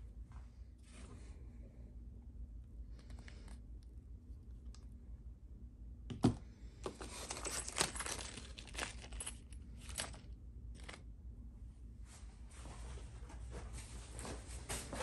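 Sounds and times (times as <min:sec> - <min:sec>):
plastic bag crinkling: 0:06.9 - 0:11.0.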